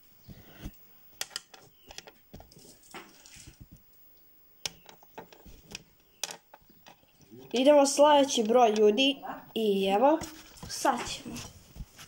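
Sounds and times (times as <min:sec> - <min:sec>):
plastic balls clicking: 0:04.7 - 0:09.1.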